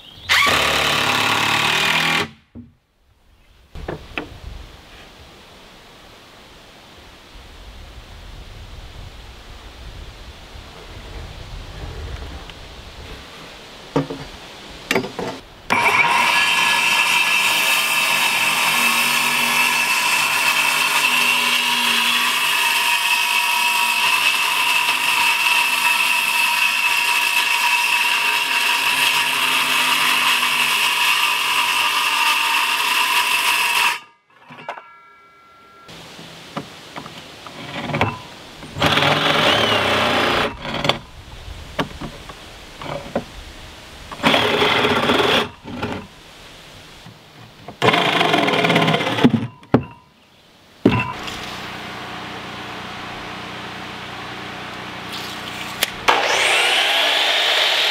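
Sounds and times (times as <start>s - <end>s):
circular saw cutting plywood: 0.3s - 2.4s, 15.2s - 34.1s, 37.5s - 41.0s, 44.1s - 46.1s, 47.8s - 49.5s, 50.9s - 57.9s
reciprocating saw bursts: 0.3s - 2.4s, 38.8s - 40.8s, 51.1s - 57.9s.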